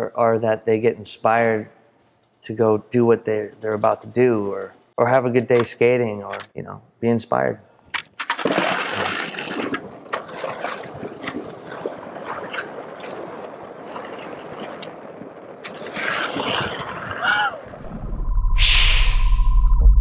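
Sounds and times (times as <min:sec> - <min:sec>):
skateboard wheels on asphalt: 0:08.2 - 0:17.8.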